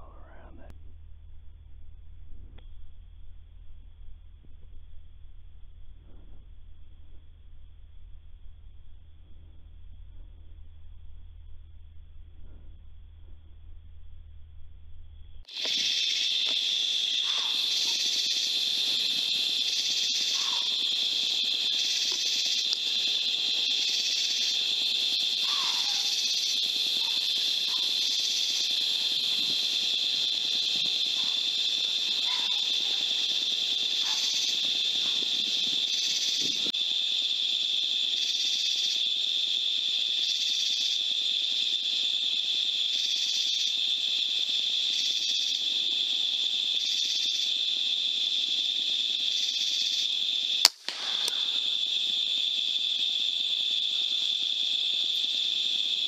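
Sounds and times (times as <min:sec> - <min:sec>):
high-pitched insect chorus: 0:15.0 - 0:56.0.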